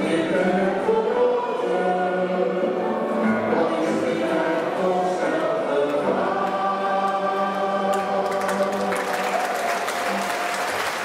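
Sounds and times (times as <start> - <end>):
voices singing together: 0.0 - 9.6
audience applause: 7.8 - 11.0.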